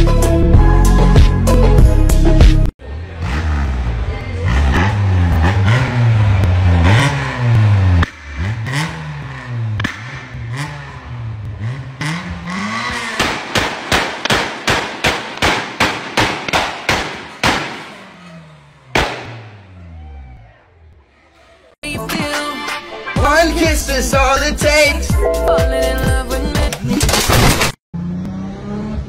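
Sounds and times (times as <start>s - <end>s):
car engine revving: 2.8s - 15.4s, 16.4s - 21.8s, 27.9s - 29.0s
exhaust backfire bangs: 3.2s - 21.7s.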